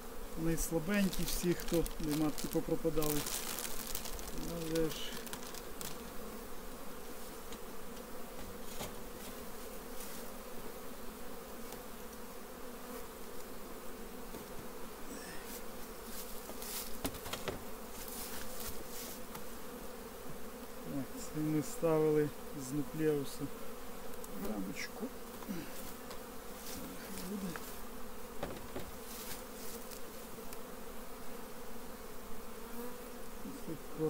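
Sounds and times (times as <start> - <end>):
honeybees humming: 0.0 - 34.0
hive tool clicks on wooden frames: 24.1 - 24.6, 28.4 - 29.0.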